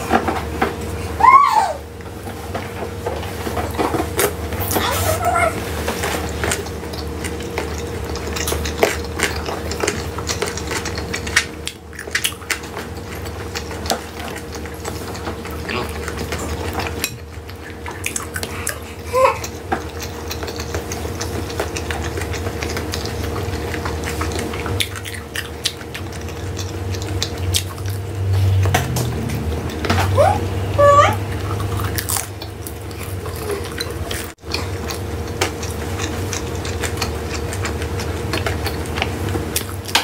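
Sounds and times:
chewing and mouth sounds: 1.9s - 40.0s
low hum: 22.3s - 39.9s.

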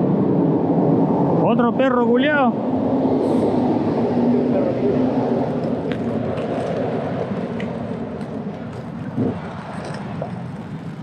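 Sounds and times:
skate wheels rolling on pavement: 3.2s - 11.0s.

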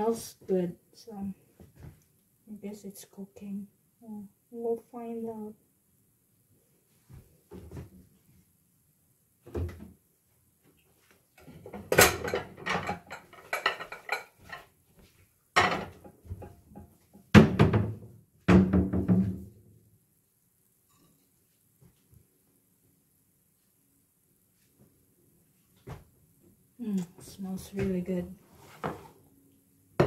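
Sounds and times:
ceramic dishes clattering: 11.8s - 14.6s.

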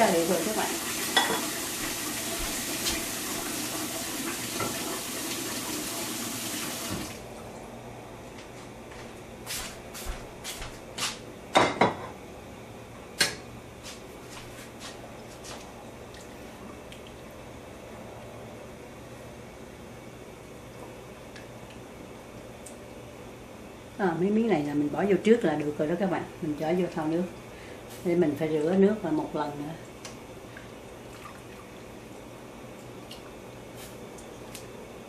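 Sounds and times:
tap water filling a bowl: 1.0s - 7.2s.

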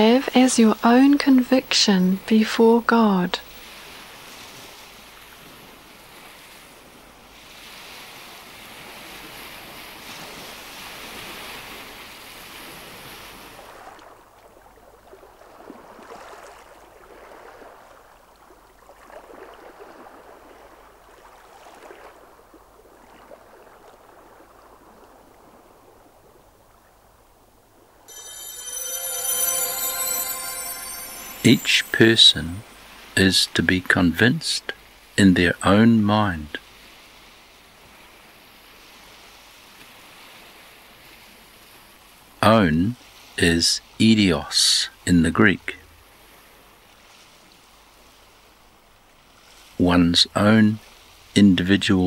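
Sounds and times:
waves lapping on shore: 0.0s - 26.6s, 36.6s - 42.4s, 46.0s - 49.8s.

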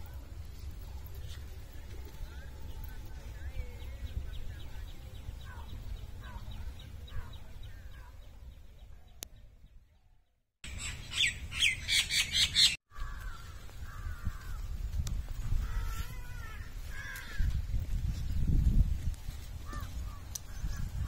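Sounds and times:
low outdoor rumble: 0.0s - 9.7s
birds chirping and squawking: 2.1s - 9.2s, 10.6s - 18.4s, 19.4s - 21.0s.

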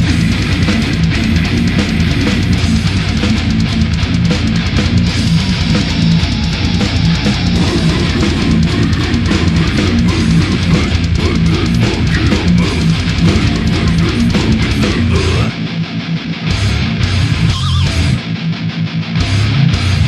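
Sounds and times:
fast dense drumming: 0.0s - 18.2s
distorted electric guitar riff: 0.0s - 20.0s.

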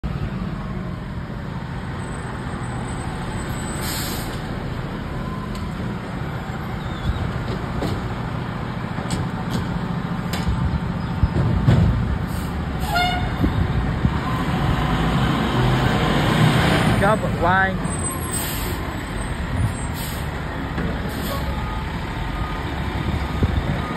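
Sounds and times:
diesel engine low rumble: 0.0s - 23.9s
air brakes hiss: 3.8s - 4.4s, 18.3s - 18.8s, 19.8s - 20.3s.

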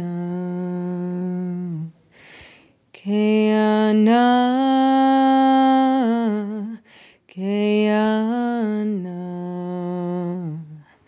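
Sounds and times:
woman singing unaccompanied: 0.0s - 2.0s, 2.9s - 11.0s
breath: 2.1s - 2.8s, 6.8s - 7.3s.

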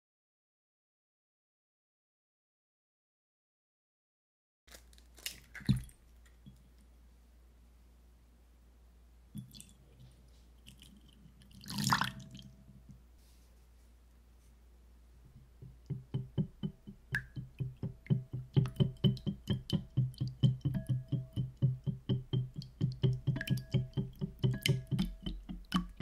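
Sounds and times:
whisk clicking against glass bowl: 15.6s - 26.0s.

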